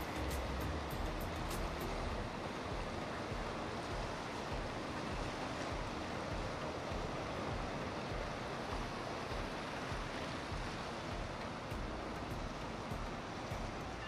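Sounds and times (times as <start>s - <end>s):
boat low rumble: 0.0s - 14.0s
rush of churned water: 0.0s - 14.0s.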